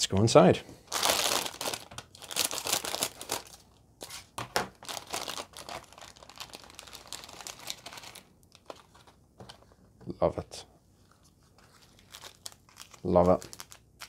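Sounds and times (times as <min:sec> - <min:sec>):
plastic packet crinkling: 0:00.9 - 0:03.8, 0:04.7 - 0:09.2, 0:11.6 - 0:14.0.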